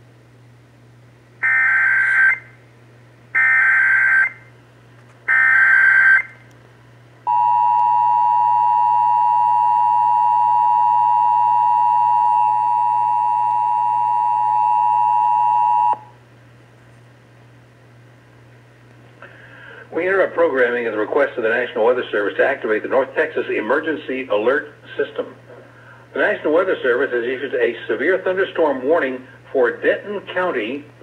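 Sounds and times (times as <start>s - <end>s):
two-tone attention signal: 7.3s - 16.1s.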